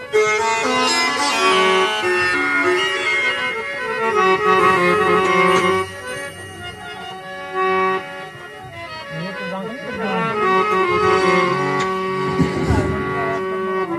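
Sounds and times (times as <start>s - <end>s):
harmonium melody: 0.0s - 13.9s.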